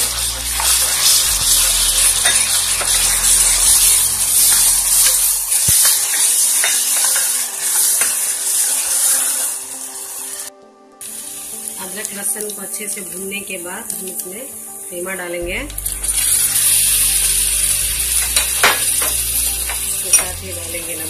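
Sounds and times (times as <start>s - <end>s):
onions sizzling in oil: 0.0s - 21.0s
spoon stirring: 0.4s - 8.3s.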